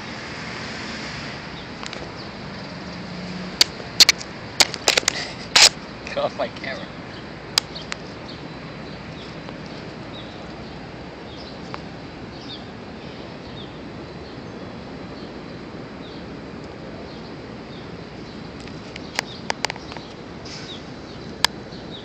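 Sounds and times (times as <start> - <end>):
outdoor background hiss: 0.0 - 22.0
small birds chirping: 1.6 - 22.0
sharp clicks: 3.6 - 5.8.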